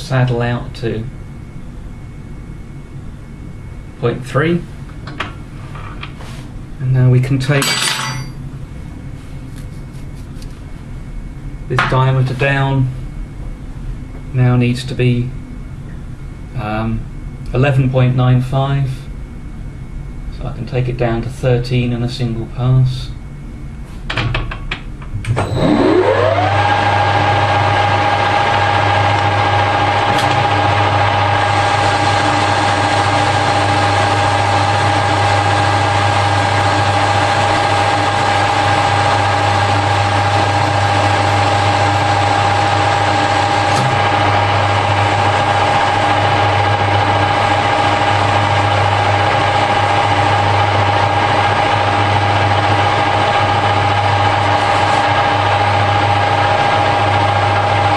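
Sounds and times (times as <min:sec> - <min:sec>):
lathe whine: 0:25.3 - 0:57.9.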